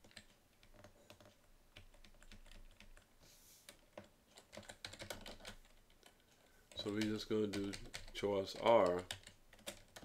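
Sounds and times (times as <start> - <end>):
computer keyboard typing: 0.0 - 3.1, 3.7 - 10.0
soft hiss: 3.0 - 4.4.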